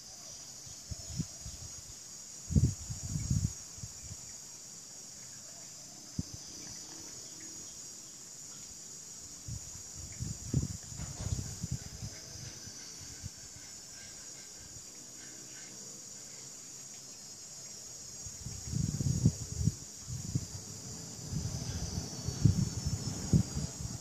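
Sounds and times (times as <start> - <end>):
high-pitched insect chorus: 0.0 - 24.0.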